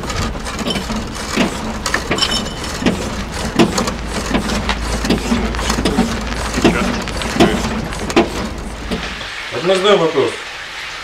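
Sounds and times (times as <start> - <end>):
car body creaking and knocking: 0.0 - 9.2
steady low rumble: 0.9 - 9.4.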